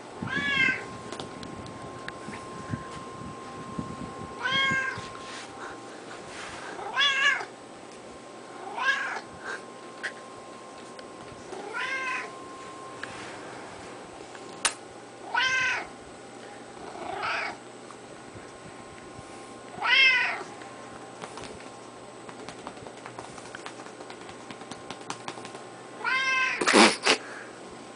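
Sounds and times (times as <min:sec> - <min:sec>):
cat meowing: 0:00.3 - 0:00.8, 0:06.9 - 0:07.5, 0:11.6 - 0:12.3, 0:15.3 - 0:15.9, 0:19.8 - 0:20.4, 0:26.0 - 0:26.6
sharp click: 0:14.5 - 0:14.8.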